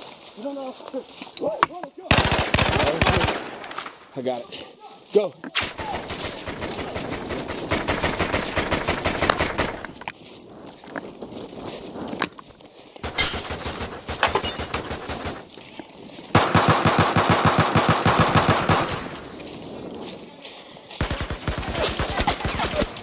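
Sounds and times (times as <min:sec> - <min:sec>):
automatic gunfire bursts: 0:02.1 - 0:03.6, 0:06.2 - 0:09.8, 0:16.4 - 0:19.2.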